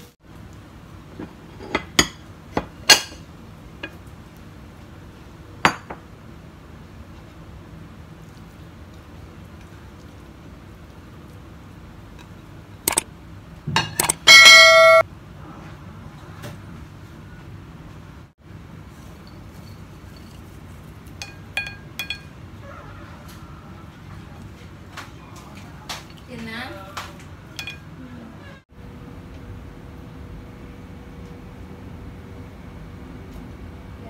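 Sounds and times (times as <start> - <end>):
ceramic dishes clinking: 21.2 - 22.4, 27.5 - 28.0.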